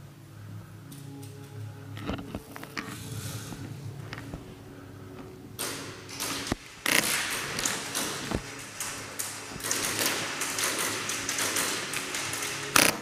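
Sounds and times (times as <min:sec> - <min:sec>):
airsoft gunfire: 0:05.6 - 0:13.0
pellets striking: 0:05.6 - 0:13.0.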